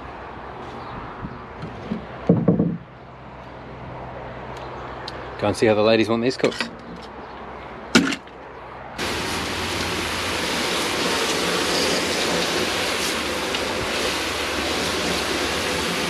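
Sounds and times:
knock: 1.6s - 2.8s
hose water spraying on wood: 9.0s - 16.0s.

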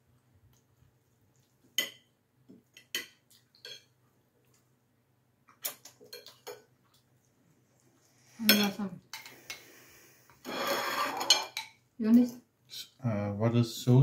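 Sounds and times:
cutlery clinking on plates: 10.4s - 11.8s.

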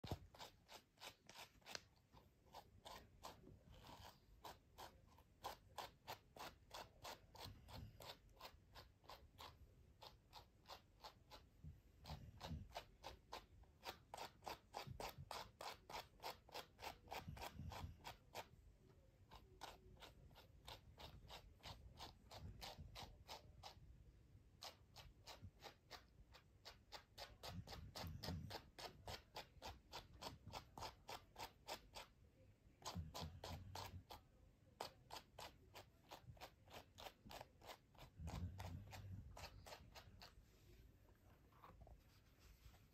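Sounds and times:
brush scratching fur: 0.0s - 42.9s.

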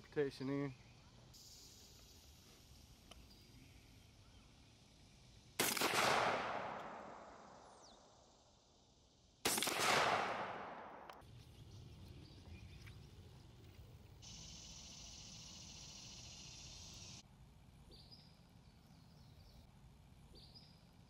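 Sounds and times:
shotgun blasts with echo: 5.6s - 7.8s, 9.4s - 11.2s.

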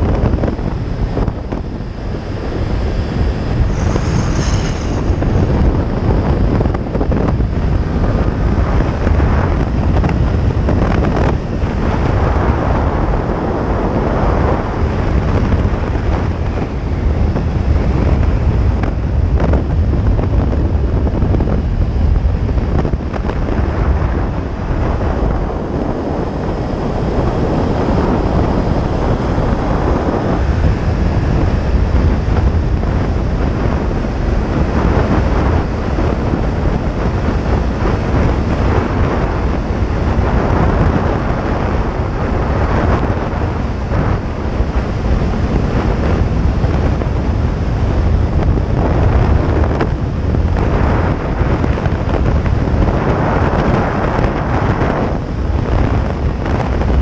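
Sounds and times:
motorcycle engine: 0.0s - 20.3s
road noise: 0.0s - 57.0s
wind buffeting microphone: 0.0s - 57.0s.

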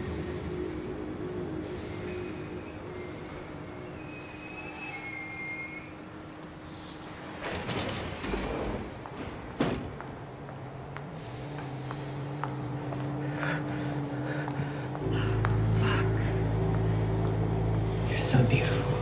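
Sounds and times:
subway car rumble: 0.0s - 19.0s
faint wheel squeals: 1.6s - 7.0s.

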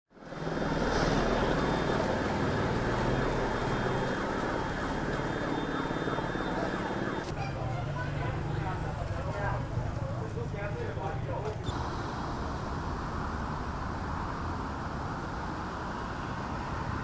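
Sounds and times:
floodwater rushing: 0.6s - 7.3s.

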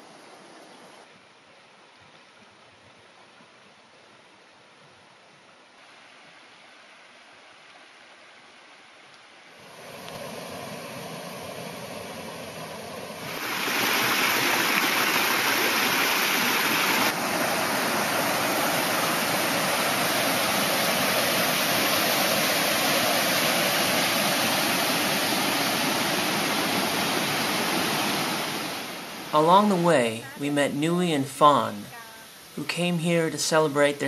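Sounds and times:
water rushing over rock: 9.7s - 30.0s.

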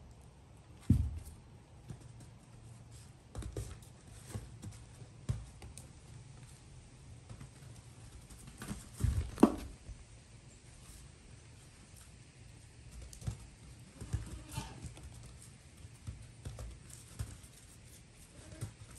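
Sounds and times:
hooves tapping on barn floor: 0.0s - 18.9s.

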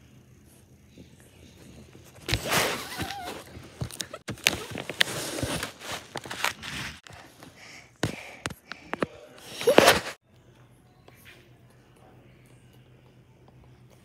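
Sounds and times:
rustling against a microphone: 1.5s - 7.4s.

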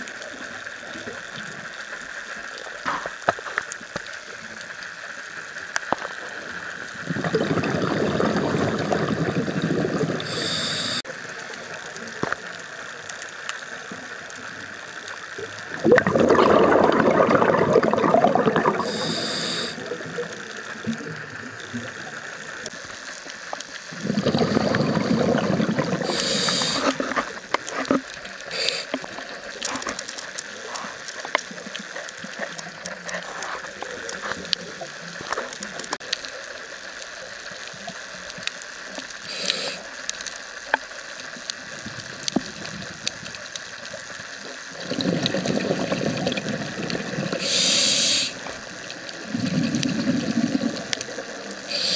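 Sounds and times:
exhaled bubbles underwater: 6.5s - 11.2s, 15.4s - 22.9s, 23.8s - 30.0s, 44.6s - 51.9s
regulator hiss on inhale: 9.9s - 11.1s, 18.6s - 20.6s, 21.7s - 27.4s, 28.3s - 29.6s, 39.0s - 40.8s, 47.0s - 51.9s
faint clicks: 18.9s - 24.0s, 26.1s - 45.4s.

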